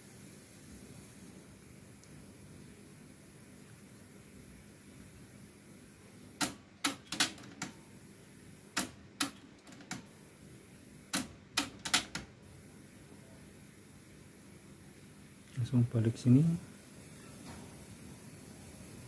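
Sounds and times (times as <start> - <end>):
tape hiss: 0.0 - 7.0, 7.6 - 19.0.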